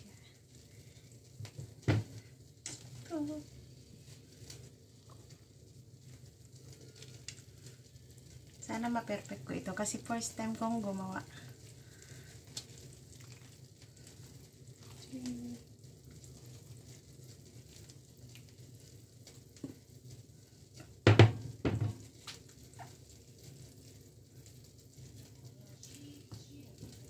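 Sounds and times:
sharp knocks: 21.1 - 22.0.

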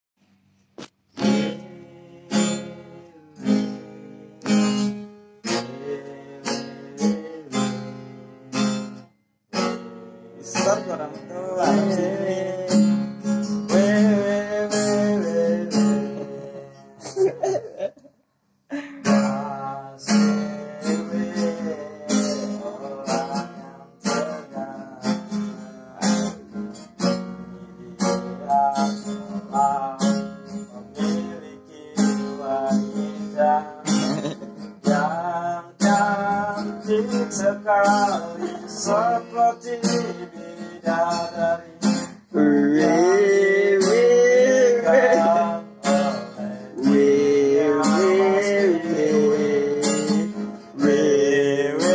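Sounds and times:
acoustic guitar strumming: 0.8 - 17.9, 19.0 - 51.9
man singing: 1.2 - 8.6, 10.2 - 17.9, 18.7 - 51.9.

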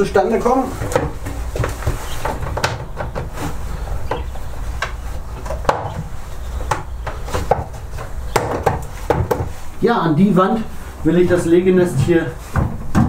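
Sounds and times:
plastic rubbing and scraping: 0.0 - 9.8.

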